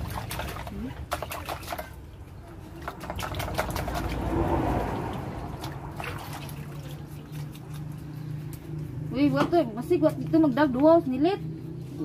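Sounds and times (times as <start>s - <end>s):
water splashing and dripping: 0.0s - 9.1s
water sloshing in a basin: 0.0s - 10.4s.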